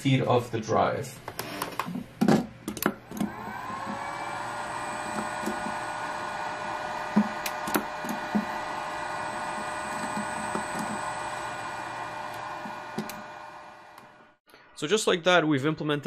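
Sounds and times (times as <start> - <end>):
electric motor whine and hum: 3.0 - 14.4.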